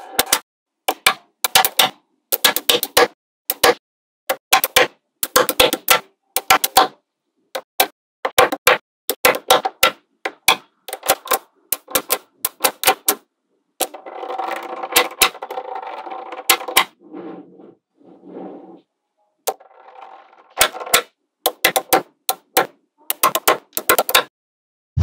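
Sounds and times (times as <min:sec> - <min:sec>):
magnetic metal balls clicking: 0:09.1 - 0:13.2, 0:19.5 - 0:24.3
metal balls rattling: 0:13.8 - 0:17.0, 0:19.5 - 0:21.8.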